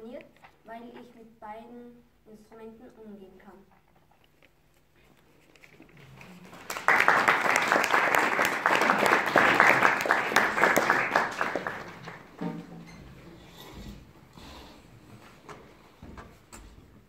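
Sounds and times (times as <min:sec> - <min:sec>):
audience applauding: 0:06.0 - 0:12.4.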